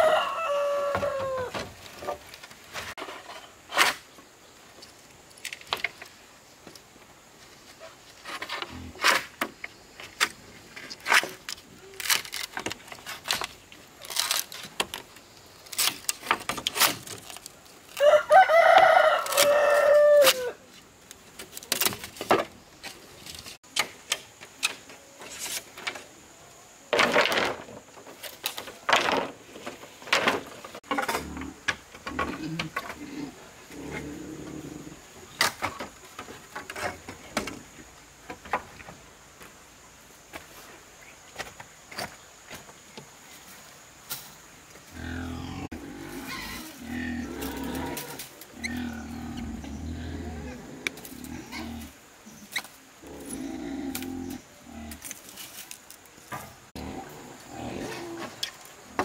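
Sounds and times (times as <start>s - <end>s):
rooster crowing: 0.0s - 1.6s, 18.0s - 20.6s.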